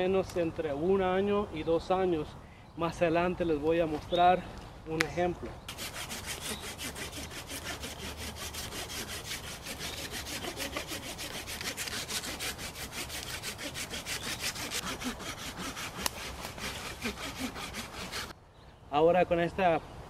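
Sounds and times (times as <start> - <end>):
hand saw cutting bark: 5.7 - 18.3.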